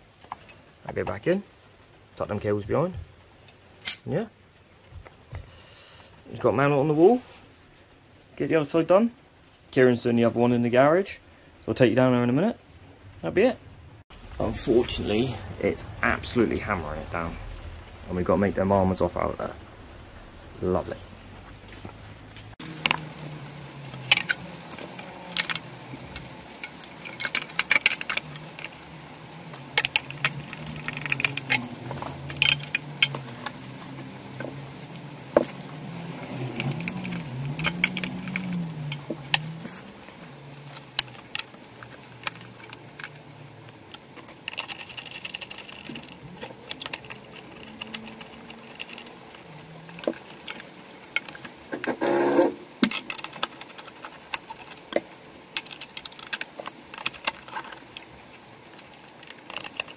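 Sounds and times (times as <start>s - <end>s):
plastic parts and wires handled: 14.3s - 59.9s
hand tools clicking and rattling: 22.6s - 59.9s.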